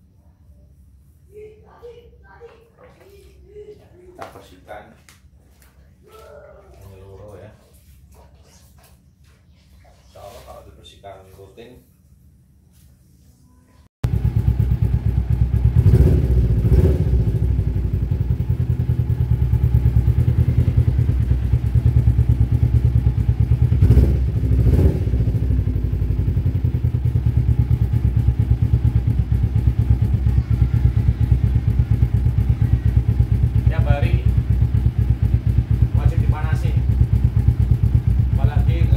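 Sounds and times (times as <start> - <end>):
motorcycle engine idling: 14.0 - 38.9.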